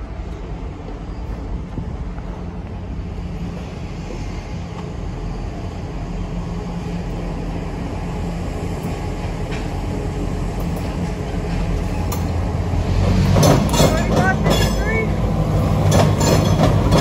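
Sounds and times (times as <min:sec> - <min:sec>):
diesel locomotive engine rumbling: 0:00.0 - 0:17.0
train wheels clanking: 0:08.9 - 0:17.0.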